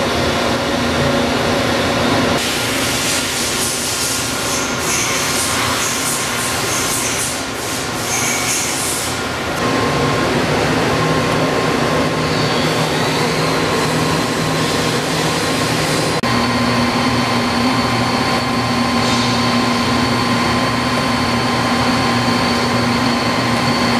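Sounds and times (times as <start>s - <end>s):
machine mechanical hum: 0.0s - 23.9s
steady whining tones: 9.1s - 23.9s.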